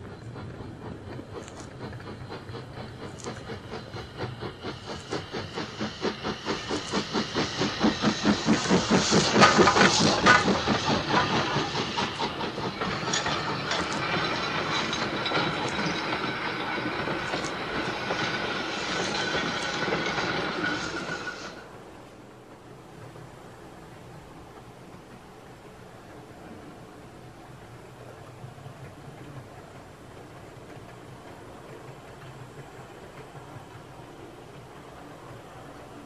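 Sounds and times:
steam locomotive exhaust beats: 0.0 - 36.0
train running noise and hiss: 0.0 - 36.0.

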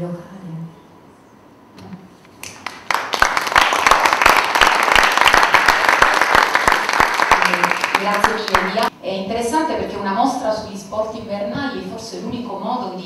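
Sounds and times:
audience applauding: 2.4 - 8.9.

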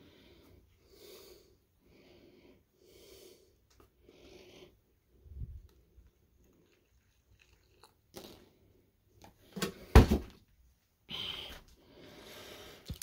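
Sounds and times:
carton thump: 9.6 - 10.4.

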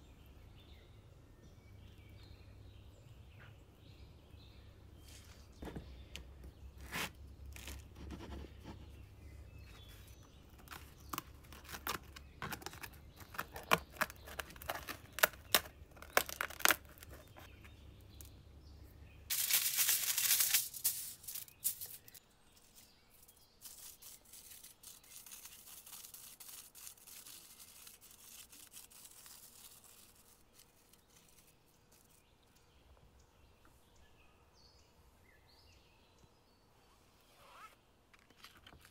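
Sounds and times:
aluminium foil crinkling: 9.9 - 17.5, 19.3 - 32.3.

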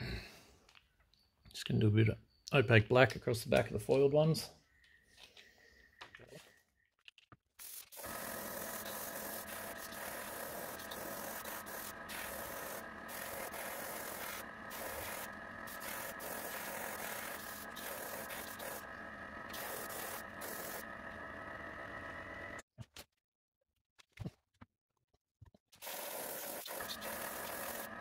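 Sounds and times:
airbrush air hiss: 7.6 - 18.9, 19.5 - 20.9, 25.8 - 28.0
compressor hum: 8.0 - 22.6, 26.5 - 28.0.

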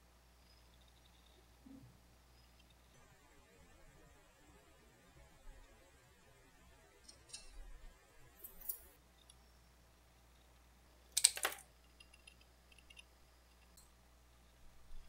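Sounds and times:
small objects clicking on hard surface: 11.1 - 13.9.

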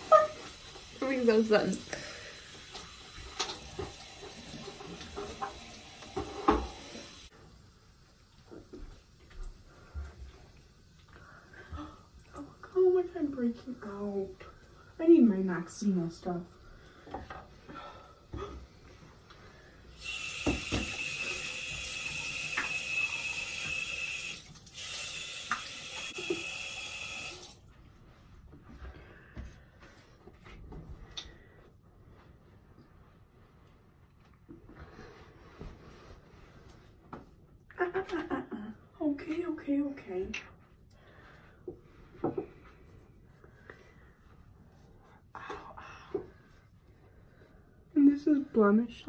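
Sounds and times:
sink tap running: 0.0 - 7.3, 19.9 - 27.6.

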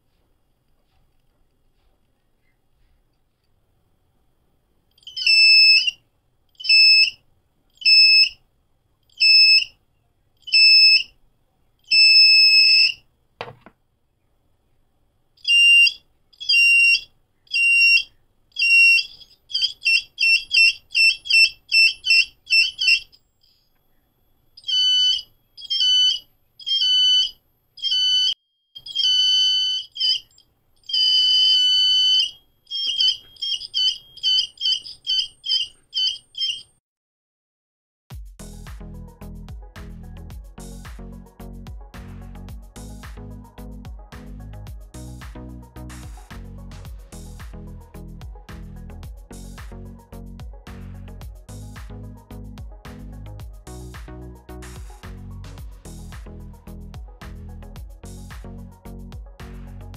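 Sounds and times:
piezo buzzer beeping: 6.7 - 7.2, 9.2 - 9.7, 10.5 - 11.1, 11.9 - 13.0, 15.5 - 23.2, 24.6 - 36.6.

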